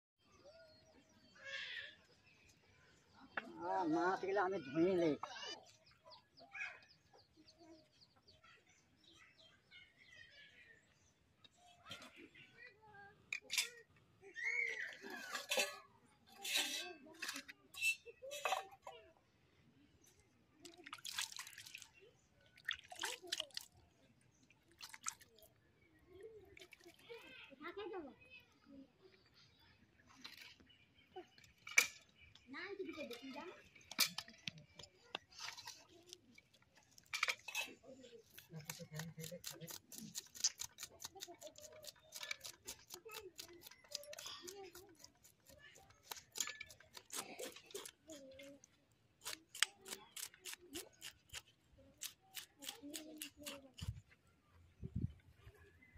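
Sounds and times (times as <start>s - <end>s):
knife scraping fish scales: 16.4s - 18.4s, 38.3s - 48.5s, 49.2s - 53.9s
water splashing and dripping: 20.6s - 23.8s, 24.7s - 25.5s.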